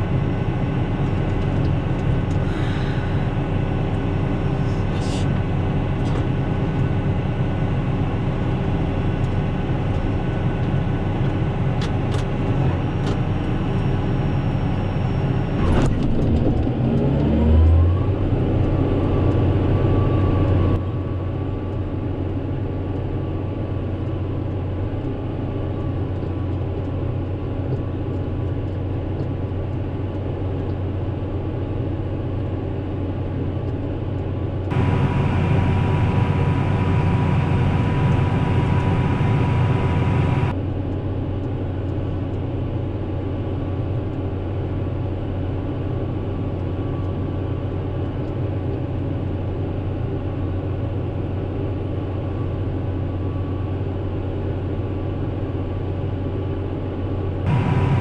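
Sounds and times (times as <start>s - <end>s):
tractor engine running: 0.0s - 16.9s, 34.2s - 40.6s, 57.4s - 58.0s.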